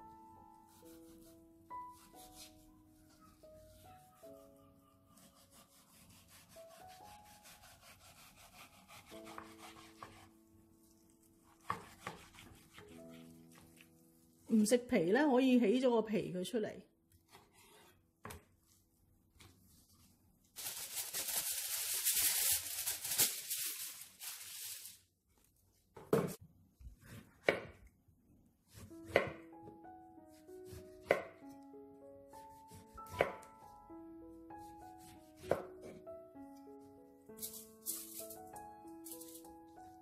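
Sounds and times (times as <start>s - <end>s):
soft background music: 0.0s - 17.9s, 28.7s - 40.0s.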